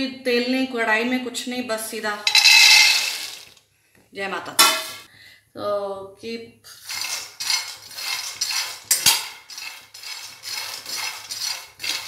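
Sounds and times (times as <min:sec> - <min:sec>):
nuts and spoon scraping metal pan: 0:02.3 - 0:03.6, 0:06.7 - 0:12.0.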